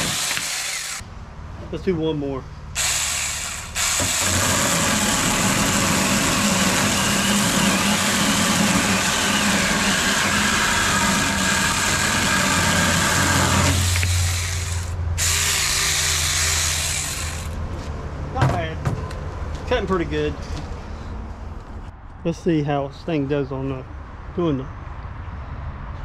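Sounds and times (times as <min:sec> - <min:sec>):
electric chainsaw cutting wood: 0:00.0 - 0:01.0, 0:02.8 - 0:17.6.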